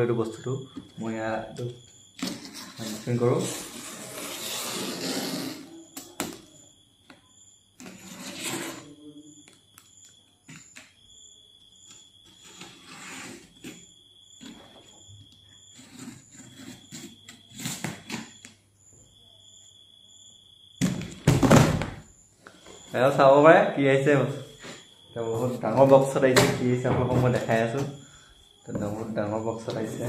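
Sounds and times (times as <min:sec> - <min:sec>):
hands scraping cardboard box: 0:02.2 - 0:05.7.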